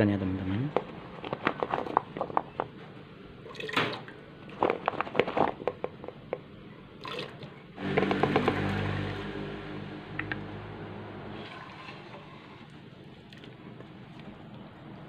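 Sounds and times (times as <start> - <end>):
steady pitched hum: 7.8 - 13.8.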